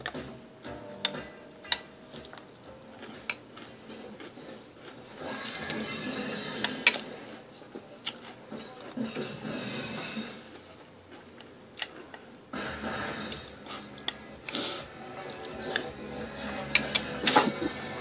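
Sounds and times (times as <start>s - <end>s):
metal spoon scraping in a bowl: 5.3s - 7.2s, 15.2s - 17.6s.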